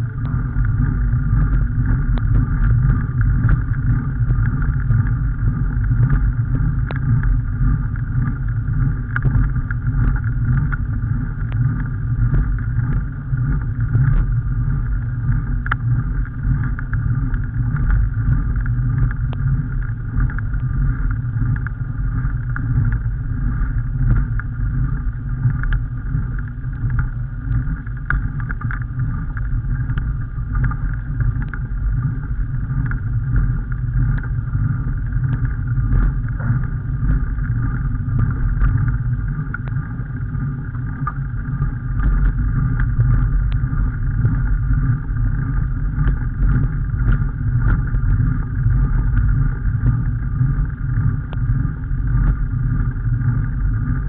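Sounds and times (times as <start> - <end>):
wind and road rumble: 0.0 - 54.0
faint ticks: 0.1 - 54.0.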